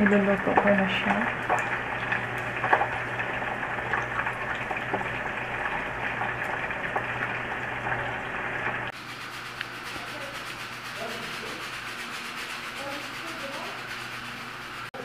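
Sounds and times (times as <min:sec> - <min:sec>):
deep-frying sizzle and pops: 0:00.0 - 0:10.3.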